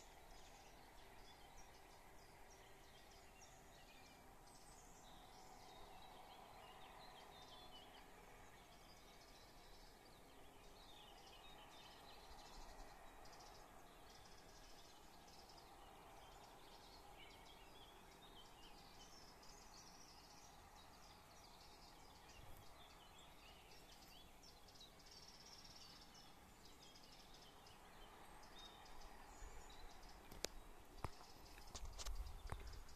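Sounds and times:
birds chirping and trilling: 0:00.0 - 0:32.9
steady background hum: 0:00.0 - 0:32.9.

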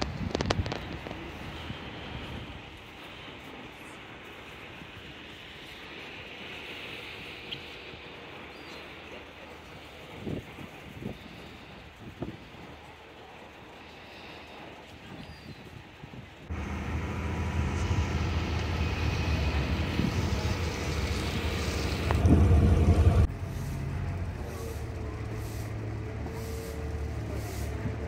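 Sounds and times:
ferry engine rumble: 0:16.3 - 0:28.0.

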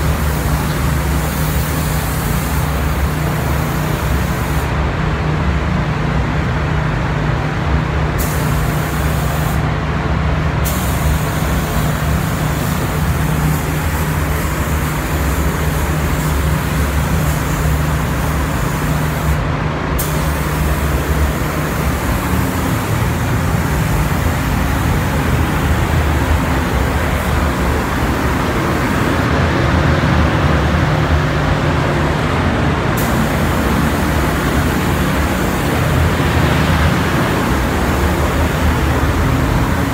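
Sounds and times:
paint spray gun hiss: 0:00.0 - 0:04.7, 0:08.2 - 0:09.6, 0:10.6 - 0:29.3, 0:33.0 - 0:39.9
ventilation low hum: 0:00.0 - 0:39.9.

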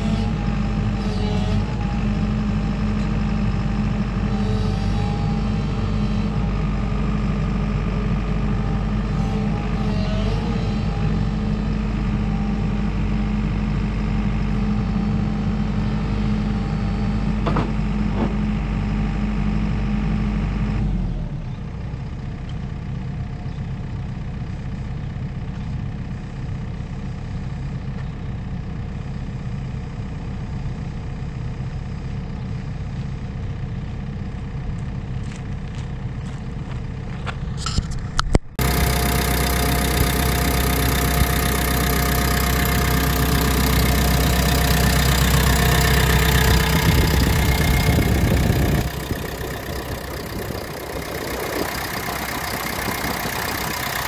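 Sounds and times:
hydraulic whine: 0:00.0 - 0:18.6, 0:37.6 - 0:54.0
excavator diesel engine running: 0:00.0 - 0:54.0.

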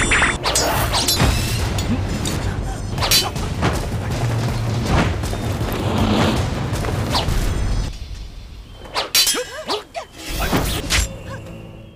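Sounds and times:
dramatic action music: 0:00.0 - 0:08.8.

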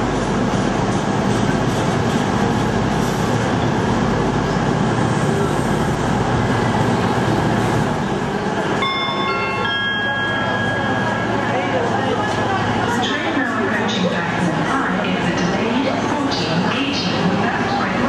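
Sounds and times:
train wheels rumbling on rails: 0:00.0 - 0:08.9
station announcement chime: 0:08.7 - 0:16.6.

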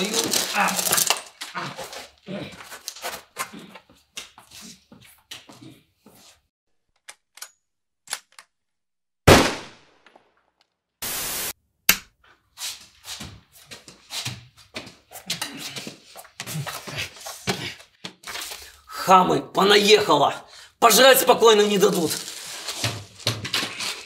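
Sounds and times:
gunshots: 0:09.3 - 0:10.3
burst of harsh noise: 0:11.0 - 0:11.6.

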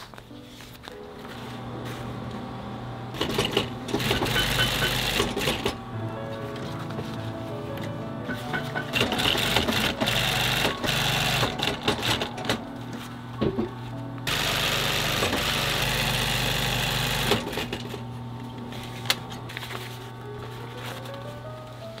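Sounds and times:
sewing machine stitching: 0:03.1 - 0:05.8, 0:08.9 - 0:12.6.

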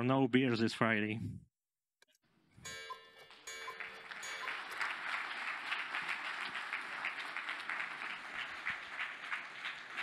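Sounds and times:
audience applauding: 0:03.7 - 0:10.0.

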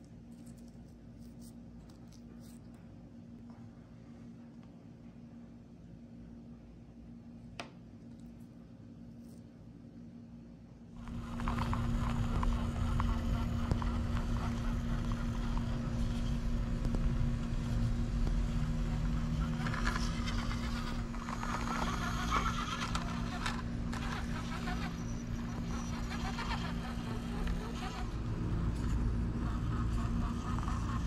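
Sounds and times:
steady low hum: 0:00.0 - 0:31.0
small electric motor whirring: 0:11.0 - 0:31.0
toy car scrabbling over rocks: 0:18.9 - 0:28.1.

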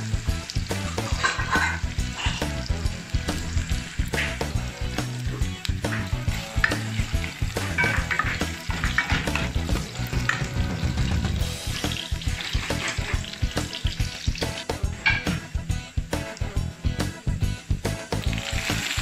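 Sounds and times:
background music: 0:00.0 - 0:19.0
onion sizzling in hot oil: 0:00.0 - 0:19.0
spoon stirring in a pot: 0:01.0 - 0:02.6, 0:05.9 - 0:10.6.

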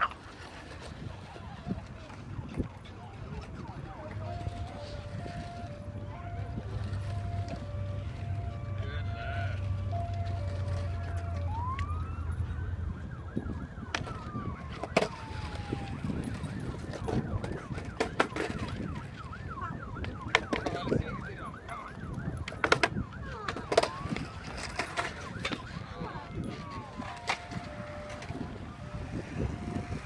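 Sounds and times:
emergency vehicle siren: 0:00.0 - 0:30.0
skateboard wheels rolling rumble: 0:00.0 - 0:30.0
skateboard clacks on concrete: 0:13.9 - 0:19.2, 0:20.0 - 0:21.1, 0:21.8 - 0:30.0.

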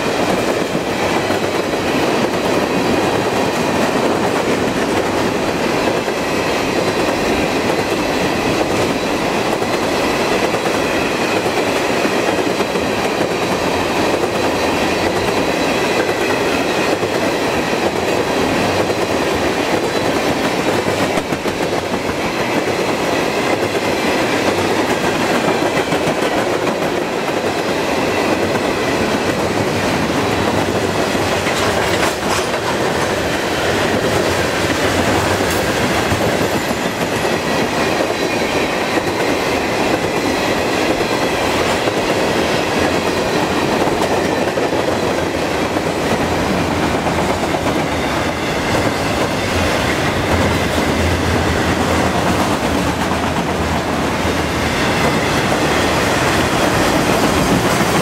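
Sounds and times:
freight train rolling past: 0:00.0 - 0:58.0.

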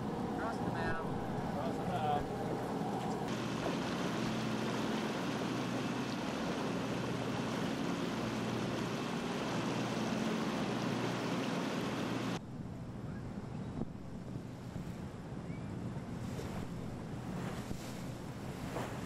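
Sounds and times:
boat engine running: 0:00.0 - 0:12.4
water wash: 0:00.0 - 0:12.4
wind noise: 0:12.6 - 0:19.0.

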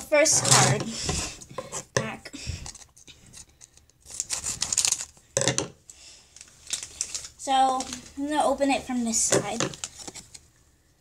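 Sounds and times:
foil pack crinkling: 0:02.7 - 0:05.3, 0:06.2 - 0:08.3, 0:09.1 - 0:10.5.

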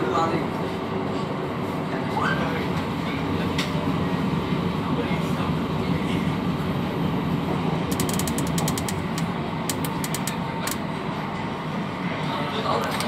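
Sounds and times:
metro train rumbling: 0:00.0 - 0:13.0
fast light clicking: 0:07.9 - 0:10.8.

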